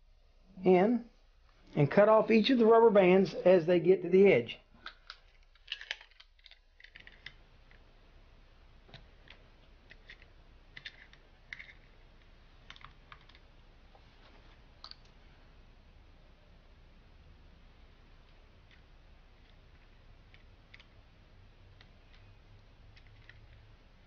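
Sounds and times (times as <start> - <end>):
small metal parts clicking: 4.8 - 7.4.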